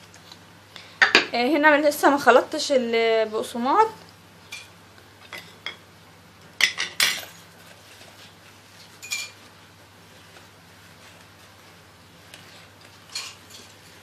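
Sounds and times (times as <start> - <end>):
spoon and bowls clinking: 9.0 - 9.4.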